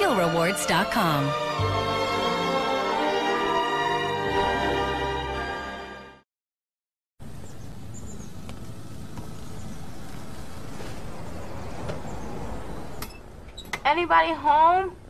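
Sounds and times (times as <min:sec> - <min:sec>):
low outdoor rumble: 0:07.2 - 0:15.0.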